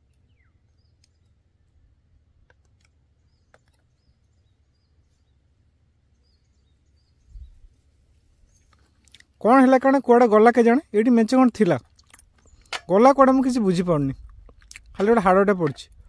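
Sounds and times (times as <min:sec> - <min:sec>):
bird chirps: 0:00.0 - 0:01.8, 0:03.1 - 0:07.8.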